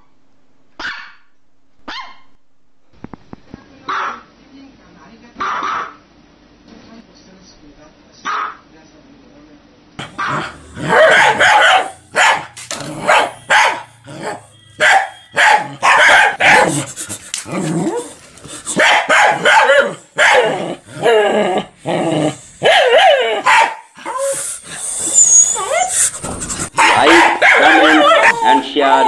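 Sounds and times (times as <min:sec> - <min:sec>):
puppy barking: 0:00.8 - 0:02.3, 0:03.9 - 0:04.3, 0:05.4 - 0:06.0, 0:08.2 - 0:08.6, 0:10.0 - 0:16.9, 0:18.7 - 0:20.8, 0:22.6 - 0:24.3, 0:26.7 - 0:29.0.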